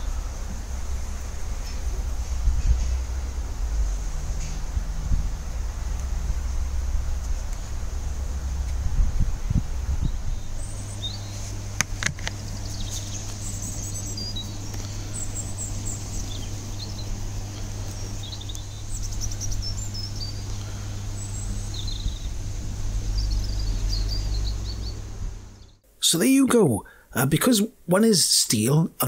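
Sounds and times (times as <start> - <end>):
steady low hum: 0.0 - 27.9
small birds chirping: 10.0 - 25.8.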